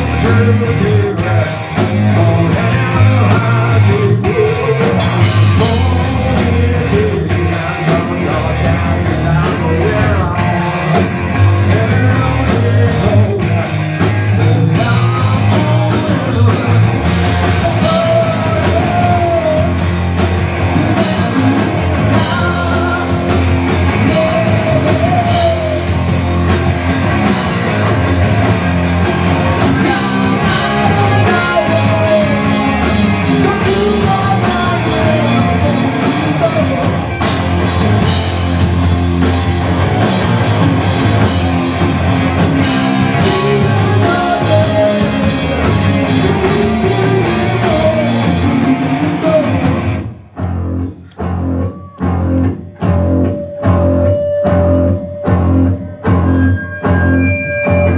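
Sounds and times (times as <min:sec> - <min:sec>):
man singing: 0:00.0 - 0:20.0, 0:20.7 - 0:26.2, 0:29.5 - 0:37.3, 0:42.6 - 0:49.8
distorted electric guitars: 0:00.0 - 0:57.9
drum kit: 0:00.0 - 0:57.9
electric bass: 0:00.0 - 0:57.9.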